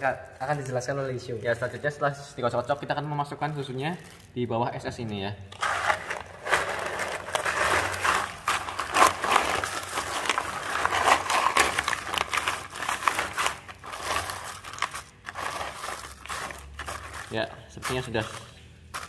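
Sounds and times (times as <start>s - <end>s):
plastic bag crinkling: 0.0s - 19.0s
ice cubes crunching and knocking: 5.6s - 19.0s.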